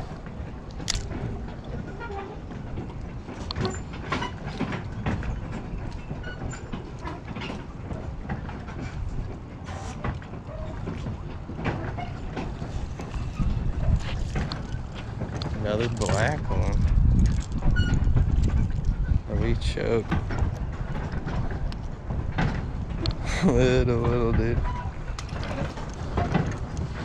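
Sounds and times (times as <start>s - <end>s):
low rumble: 12.4s - 27.0s.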